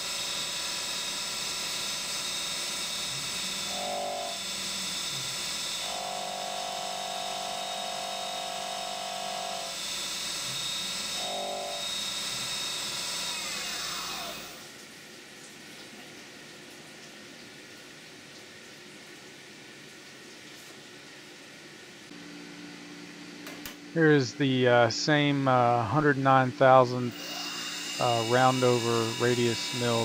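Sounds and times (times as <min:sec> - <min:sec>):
milling machine spindle whining: 0:00.0 - 0:14.7, 0:23.9 - 0:30.0.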